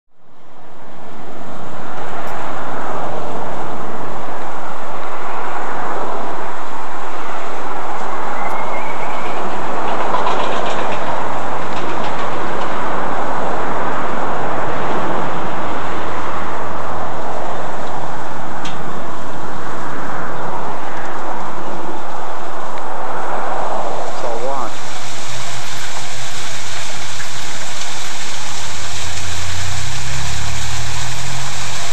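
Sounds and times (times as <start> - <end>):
low hum: 0.1 - 31.9
cascading water rushing: 24.0 - 31.9.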